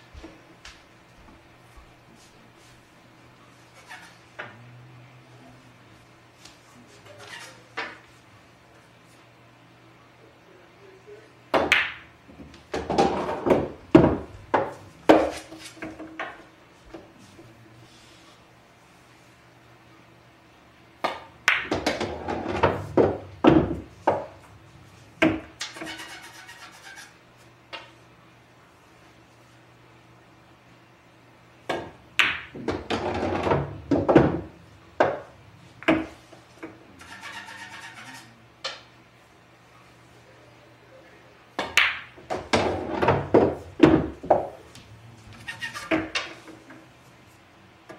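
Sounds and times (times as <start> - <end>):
pool balls clacking: 6.5 - 8.2, 11.5 - 17.2, 21.0 - 28.0, 31.6 - 39.0, 41.5 - 46.9
cue tip striking ball: 21.0 - 24.5, 31.7 - 37.9, 41.6 - 44.6
scraping: 24.8 - 27.2, 37.0 - 38.4, 45.1 - 46.8.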